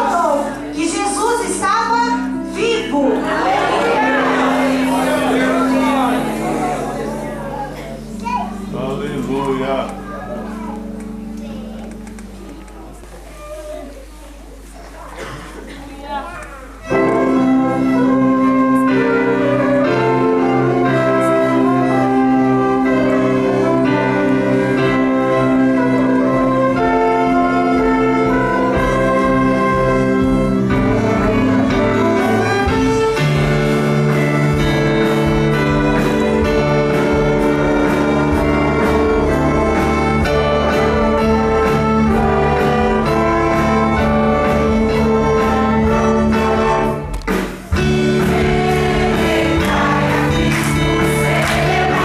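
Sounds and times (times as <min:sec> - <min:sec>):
orchestra with electric guitar: 0:00.0 - 0:13.4, 0:16.6 - 0:52.0
steady beat: 0:28.5 - 0:52.0.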